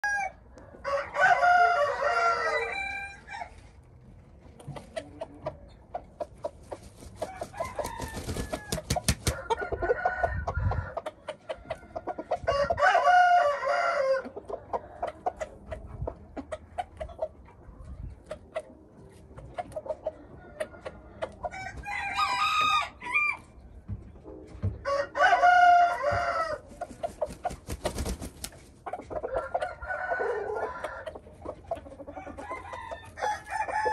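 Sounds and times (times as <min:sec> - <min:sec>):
roosters crowing: 0:00.0 - 0:03.7, 0:07.1 - 0:15.0, 0:21.4 - 0:23.6, 0:24.8 - 0:26.9, 0:29.0 - 0:33.9.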